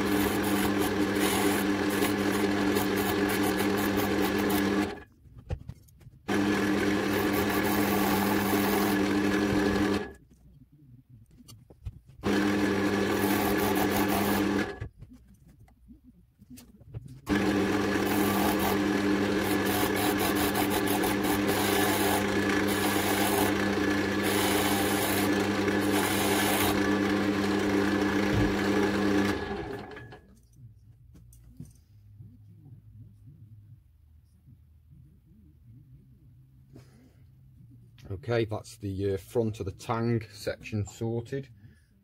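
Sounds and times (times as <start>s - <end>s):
turning tool cutting wood: 0.0s - 5.0s, 6.3s - 10.2s, 12.2s - 14.9s, 17.2s - 30.2s
wood lathe motor hum: 0.0s - 5.0s, 6.3s - 10.2s, 12.2s - 14.8s, 17.3s - 30.2s.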